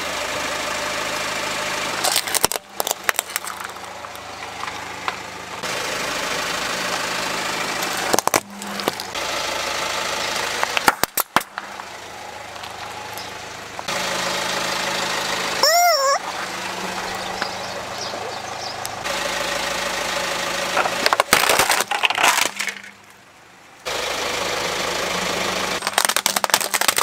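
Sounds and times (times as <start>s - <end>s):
car engine idling: 0.0s - 27.0s
plastic toys cracking under tyre: 2.0s - 4.8s, 8.0s - 9.1s, 10.6s - 11.7s, 20.8s - 22.9s, 25.8s - 27.0s.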